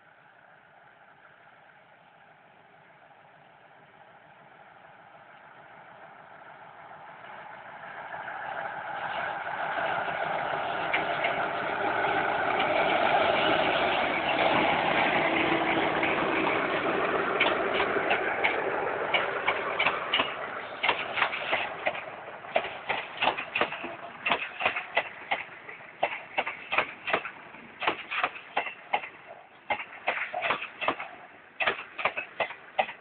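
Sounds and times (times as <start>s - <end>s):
diesel locomotive engine: 0.0s - 33.0s
train wheels clacking on rail joints: 8.9s - 33.0s.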